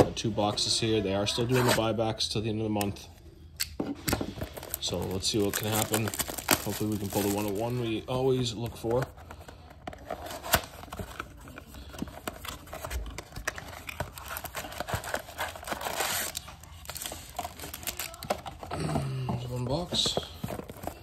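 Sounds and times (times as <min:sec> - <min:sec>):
paper crinkling: 0:04.4 - 0:18.9, 0:19.6 - 0:21.0
tearing rustle: 0:04.5 - 0:07.8, 0:12.2 - 0:18.6.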